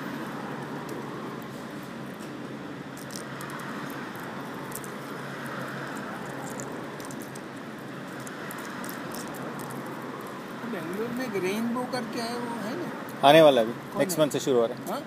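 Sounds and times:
street traffic noise: 0.0s - 15.0s
pigeons pecking on stone: 2.9s - 11.1s.

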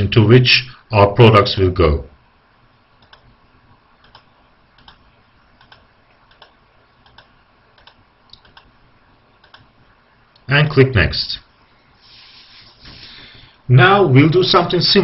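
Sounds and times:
low steady hiss: 0.0s - 15.0s
computer keyboard clicks: 3.0s - 3.3s, 4.0s - 5.0s, 5.6s - 8.7s, 9.4s - 9.7s.

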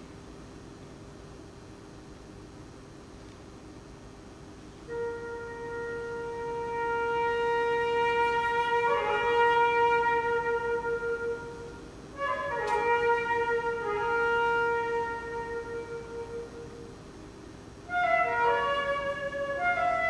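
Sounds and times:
concert flute playing: 4.9s - 17.1s, 17.9s - 20.0s.

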